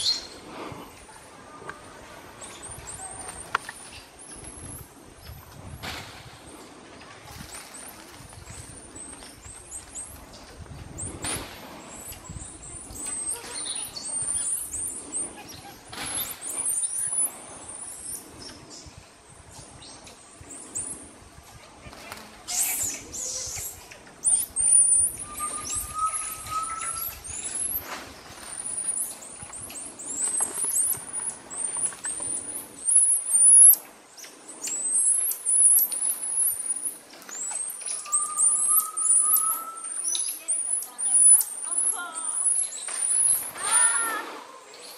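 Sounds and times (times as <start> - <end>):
monkeys high-pitched chirping: 0.0 - 0.4, 8.5 - 18.9, 22.4 - 44.9
leaves and branches rustling: 0.0 - 44.9.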